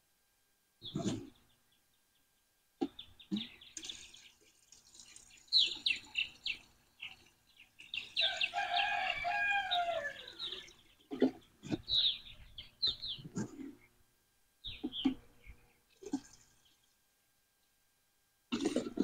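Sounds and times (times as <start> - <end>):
small birds chirping: 0.8 - 14.0, 14.6 - 17.0
rooster crowing: 8.2 - 10.6.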